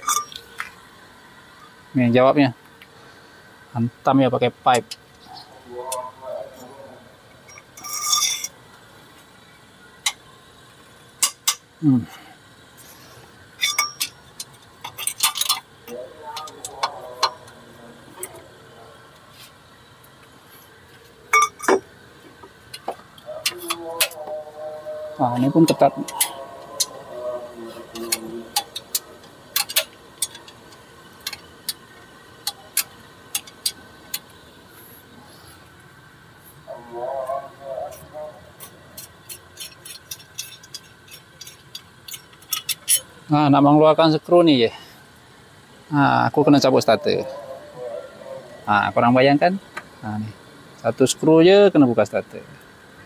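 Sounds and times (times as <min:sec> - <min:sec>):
metal hand tools clinking: 0:00.0 - 0:00.4, 0:07.5 - 0:08.6, 0:13.6 - 0:17.5, 0:21.3 - 0:21.8, 0:27.9 - 0:31.8, 0:38.6 - 0:43.1.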